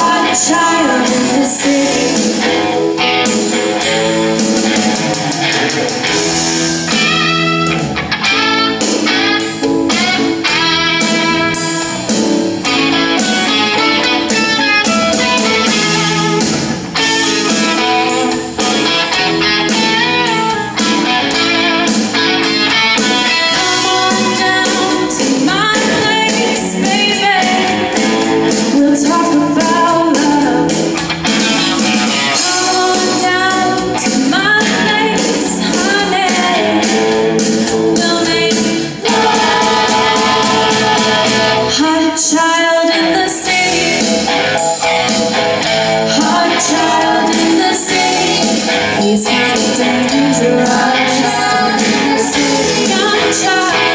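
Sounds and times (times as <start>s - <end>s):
singers: 0.0s - 2.6s, 23.0s - 30.8s, 32.2s - 44.2s, 46.0s - 53.9s
drum kit beat: 0.0s - 42.0s, 43.4s - 53.9s
electric guitar: 0.0s - 53.9s
keyboard: 0.0s - 53.9s.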